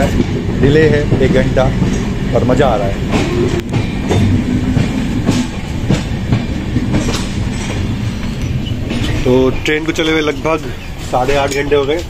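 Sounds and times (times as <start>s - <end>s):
train rumble: 0.0s - 12.0s
wheels clacking over rail joints: 0.0s - 12.0s.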